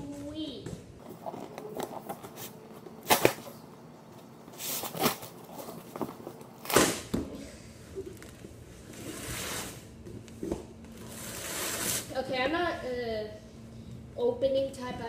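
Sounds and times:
cardboard ripping and scraping: 4.6s - 7.0s, 11.0s - 12.2s.

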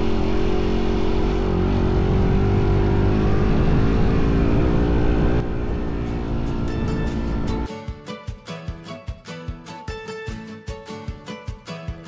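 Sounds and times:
motorcycle engine running: 0.0s - 7.7s.

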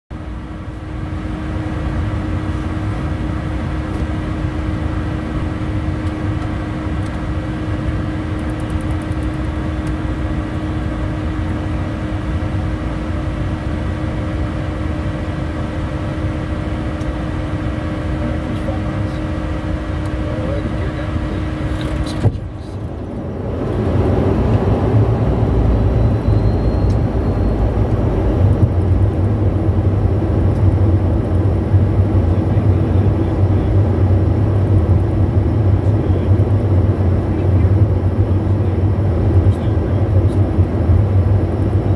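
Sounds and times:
jet cockpit air rush and drone: 0.2s - 41.9s
low rumble: 21.8s - 41.9s
held tone: 25.4s - 28.2s.

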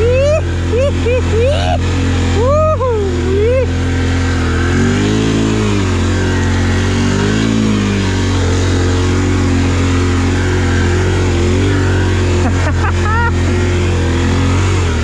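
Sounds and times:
quad bike engine revving: 0.0s - 15.0s
tires churning through mud: 0.0s - 15.0s.

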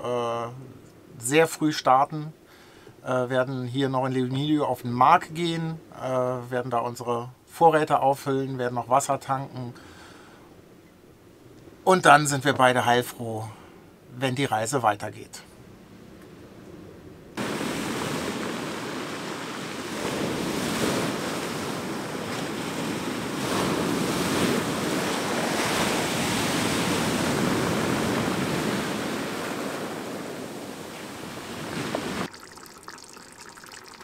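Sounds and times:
surf breaking on pebbles: 17.4s - 32.4s.

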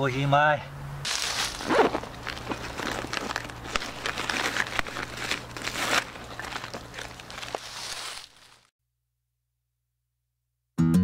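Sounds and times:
crackling and rustling: 1.1s - 8.7s.

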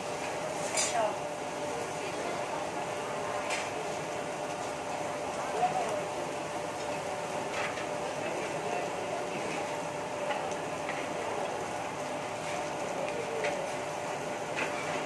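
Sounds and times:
restaurant hiss and hum: 0.0s - 15.0s.

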